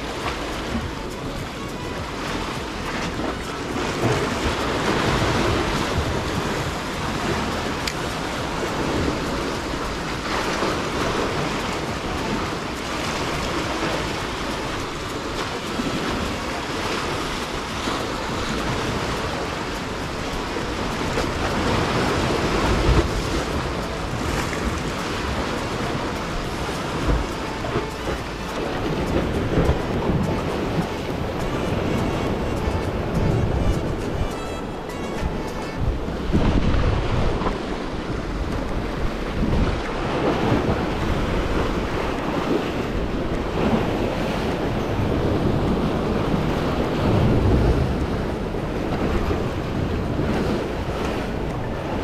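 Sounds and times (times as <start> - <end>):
sea waves splashing on concrete: 0.0 - 52.0
wind on microphone: 0.0 - 52.0.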